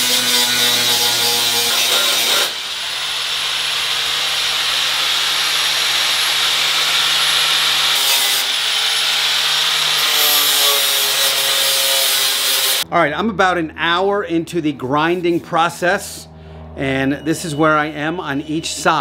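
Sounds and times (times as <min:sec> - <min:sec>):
large angle grinder whine: 0:00.0 - 0:12.8
small disc grinder high whine: 0:02.0 - 0:10.0.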